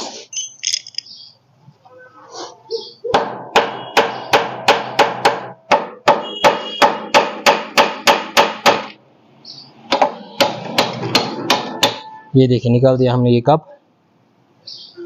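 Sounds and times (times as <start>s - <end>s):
hammer striking metal: 9.9s - 12.3s.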